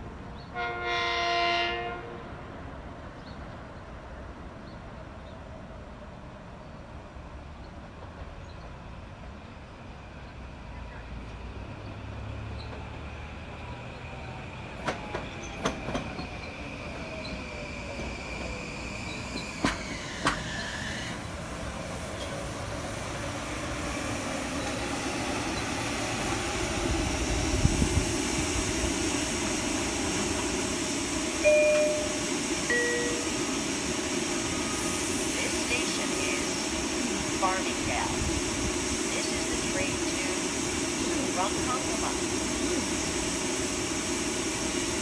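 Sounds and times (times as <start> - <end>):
train cars rumbling and hissing: 0.0 - 45.0
two-note door chime: 31.5 - 33.4.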